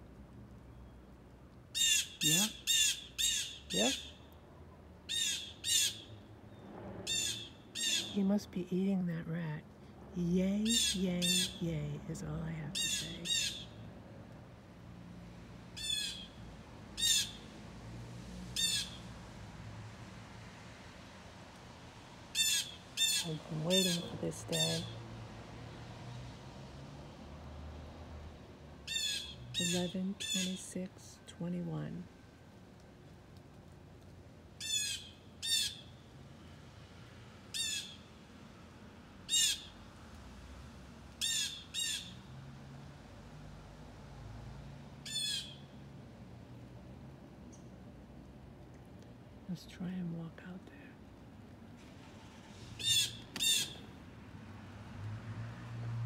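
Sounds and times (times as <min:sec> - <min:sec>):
blue jay harsh jeer calls: 0:01.8 - 0:04.2, 0:05.1 - 0:06.1, 0:07.1 - 0:08.2, 0:10.6 - 0:11.6, 0:12.8 - 0:13.8, 0:15.8 - 0:16.4, 0:17.0 - 0:17.4, 0:18.6 - 0:19.0, 0:22.4 - 0:24.9, 0:28.9 - 0:30.6, 0:34.6 - 0:36.0, 0:37.5 - 0:38.0, 0:39.3 - 0:39.7, 0:41.2 - 0:42.2, 0:45.0 - 0:45.7, 0:52.8 - 0:53.8.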